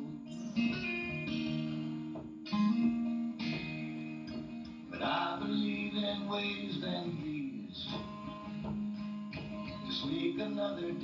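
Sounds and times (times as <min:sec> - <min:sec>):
guitar chords strummed: 0:00.0 - 0:11.0.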